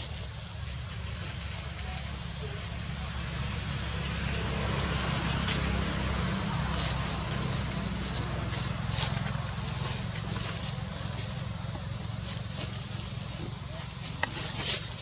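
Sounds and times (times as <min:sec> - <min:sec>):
high-pitched insect drone: 0:00.0 - 0:15.0
low constant rumble: 0:00.0 - 0:15.0.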